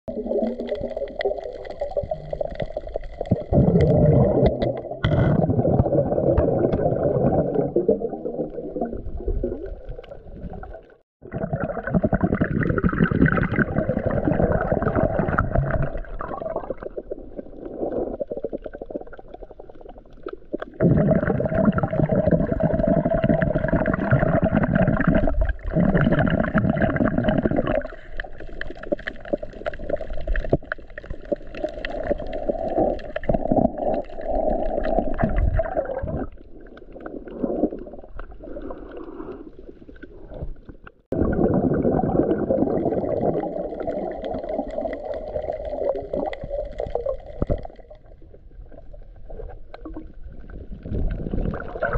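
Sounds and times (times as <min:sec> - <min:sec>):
underwater rushing and gurgling: 0:00.1 - 0:51.9.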